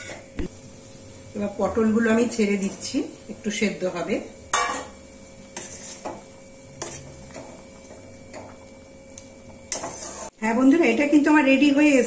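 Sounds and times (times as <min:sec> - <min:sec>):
faint steady hum: 0:00.0 - 0:12.0
metal spatula scraping pan: 0:04.5 - 0:07.7, 0:09.7 - 0:10.4.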